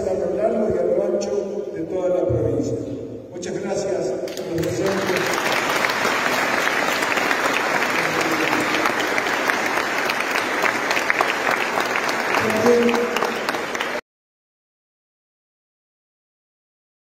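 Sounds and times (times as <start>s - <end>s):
audience clapping: 4.3s - 14.0s.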